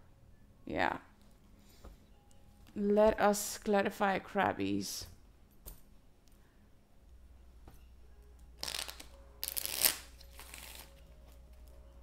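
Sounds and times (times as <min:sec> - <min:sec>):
cards being shuffled: 0:08.6 - 0:11.4.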